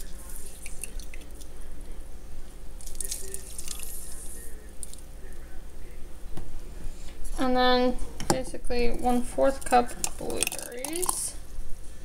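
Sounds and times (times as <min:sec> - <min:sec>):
juice trickling and dripping: 0:00.3 - 0:01.6, 0:02.8 - 0:05.1, 0:10.0 - 0:11.3.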